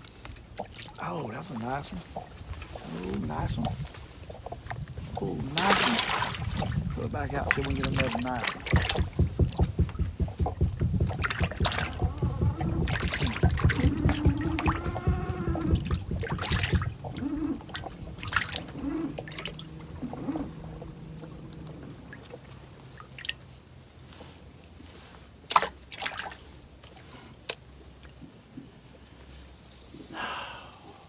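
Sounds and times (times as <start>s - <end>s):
water trickling and sloshing: 0.0s - 30.1s
low steady hum: 0.0s - 31.0s.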